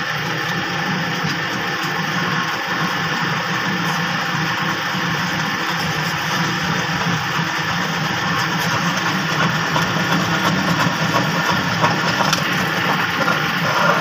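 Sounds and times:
drill press drilling steel: 0.0s - 14.0s.

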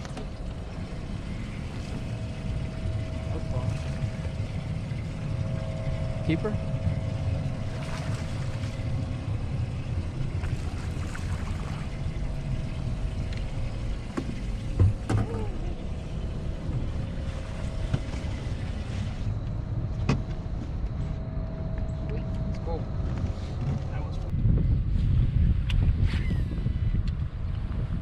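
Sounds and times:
boat noise: 0.0s - 24.3s
faint steady hum: 0.0s - 28.0s
wind rumble: 0.0s - 28.0s
fish splashing out of water: 7.7s - 9.1s, 10.4s - 12.3s.

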